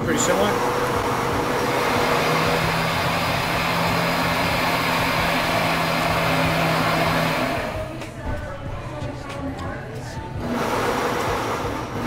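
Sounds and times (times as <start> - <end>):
machine rushing noise: 0.0 - 8.0.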